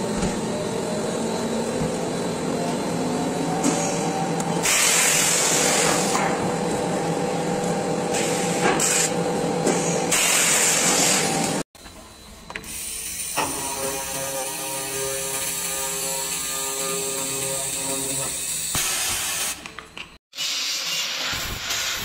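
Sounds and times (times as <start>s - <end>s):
machine hissing with faint hum: 0.0s - 19.6s
loud bursts of hiss: 18.5s - 19.6s, 20.4s - 22.0s.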